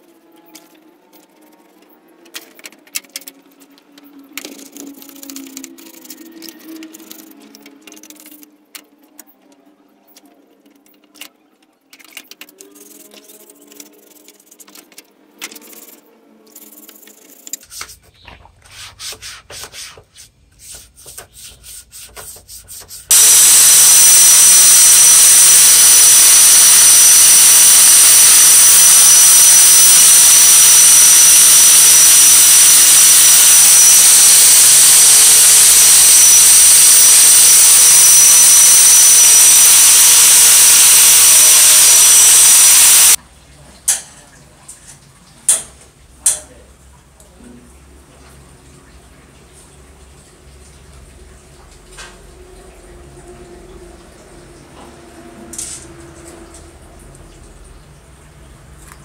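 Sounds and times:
angle grinder on metal: 23.1s - 43.2s.

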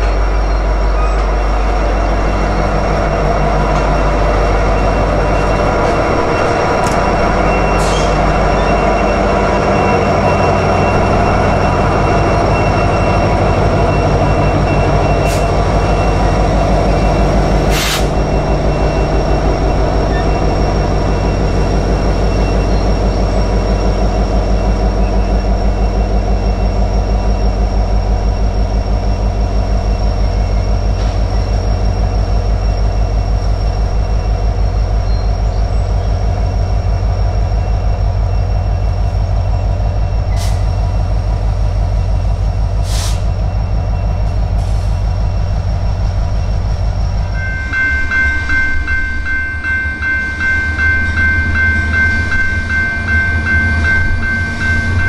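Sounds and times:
crossing bell ringing: 0.0s - 42.7s, 43.4s - 55.0s
diesel locomotive engine throbbing: 0.0s - 55.0s.

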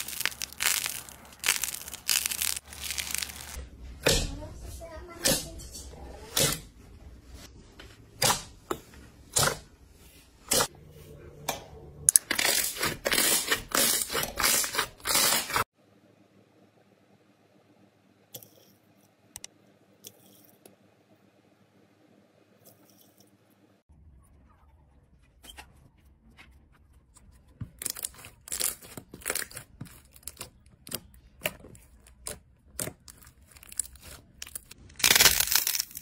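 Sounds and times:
slime squelching and popping: 0.0s - 3.6s.

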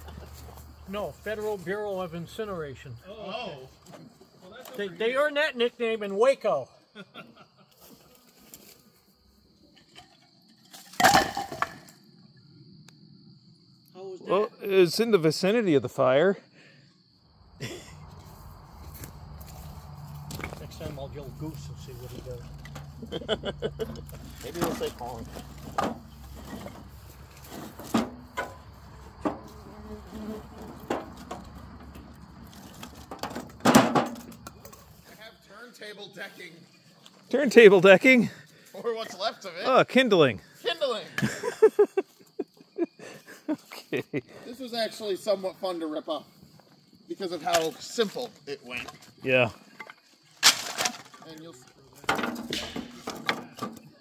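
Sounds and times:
wooden boards clattering onto pile: 10.7s - 11.9s, 24.5s - 28.6s, 32.6s - 34.4s, 49.8s - 51.2s, 52.0s - 53.8s
wooden boards knocking together: 32.9s - 34.4s.

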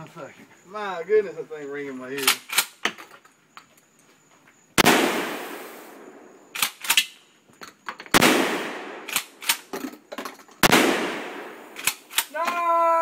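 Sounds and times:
shotgun blasts: 4.8s - 7.1s, 8.1s - 9.7s, 10.6s - 12.3s.

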